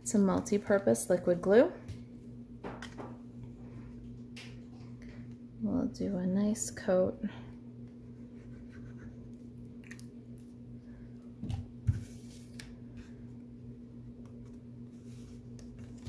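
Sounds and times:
steady low hum: 0.0s - 16.0s
paper handling: 14.3s - 16.0s.

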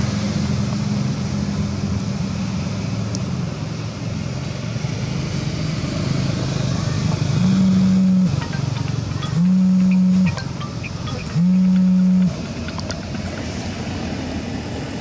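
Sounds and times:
road noise: 0.0s - 15.0s
car engine humming: 0.4s - 15.0s
loud low horn note: 7.4s - 8.4s, 9.4s - 10.4s, 11.3s - 12.4s.

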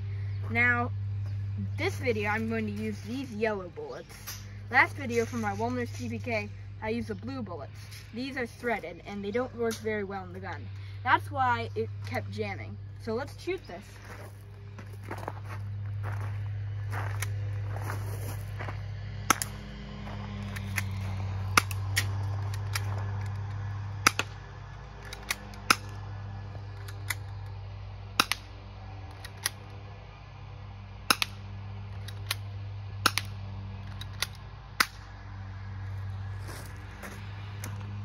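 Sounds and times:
steady low hum: 0.0s - 38.0s
airsoft pistol snaps and clicks: 19.3s - 19.6s, 20.5s - 24.4s, 25.0s - 26.0s, 26.8s - 27.5s, 28.2s - 28.5s, 29.1s - 29.7s, 31.1s - 31.4s, 32.0s - 35.0s.

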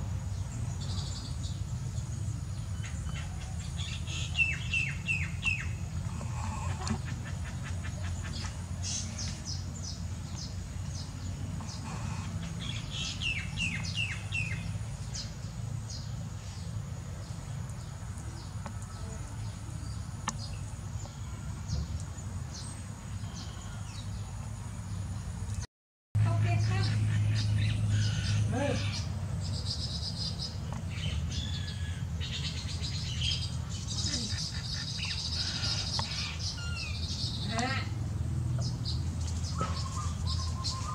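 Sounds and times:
weaver birds chirping: 0.0s - 25.6s, 26.2s - 40.9s.

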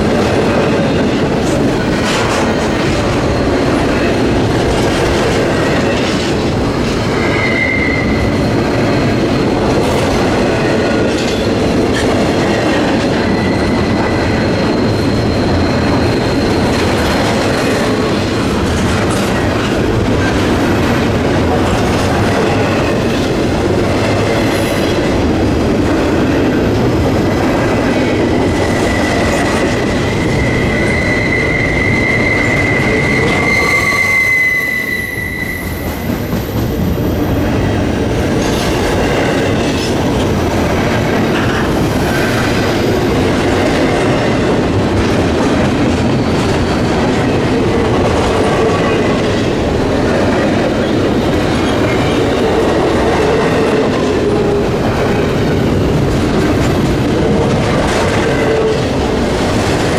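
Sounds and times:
freight train wheels rumbling: 0.0s - 59.9s
high wheel squeal: 7.0s - 9.5s, 13.1s - 18.0s, 28.6s - 37.0s.

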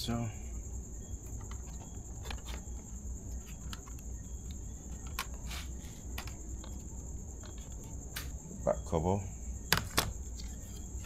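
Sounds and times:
plastic parts clicking and tapping: 1.2s - 5.4s, 6.1s - 8.4s.

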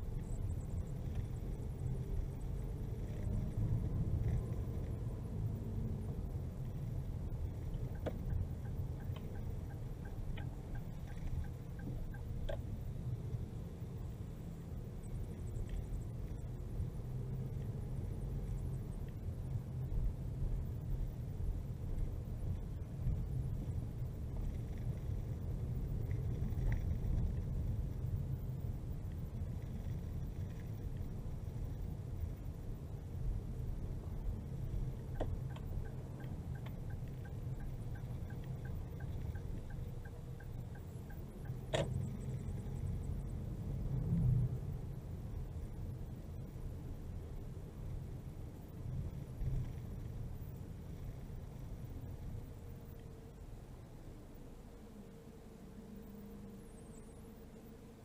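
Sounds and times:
car engine and tyres rumbling: 0.0s - 58.0s
turn signal ticking: 6.6s - 12.8s, 34.4s - 43.8s.

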